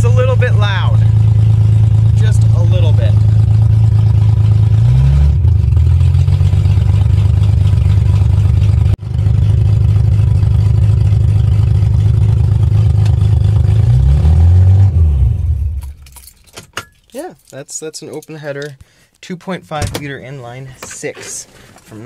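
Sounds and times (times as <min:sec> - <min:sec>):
engine winding down: 0:00.0 - 0:15.9
rough loud car engine: 0:00.0 - 0:16.2.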